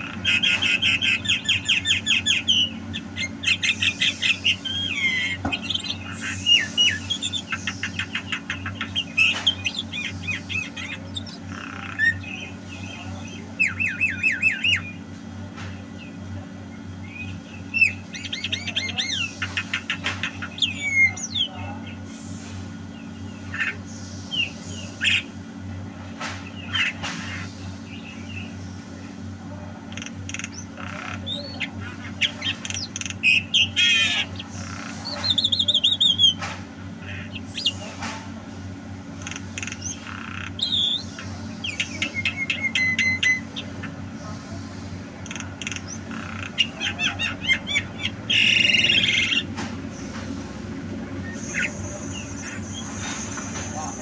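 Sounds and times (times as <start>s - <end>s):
bird calling and chattering: 0.0s - 22.1s, 22.7s - 54.0s
steady low hum: 0.0s - 54.0s.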